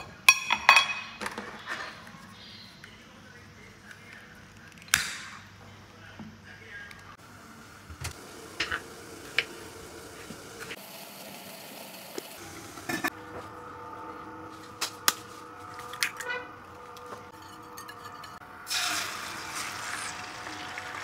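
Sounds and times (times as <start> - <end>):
steel pot and lid clinking: 17.3 - 18.4.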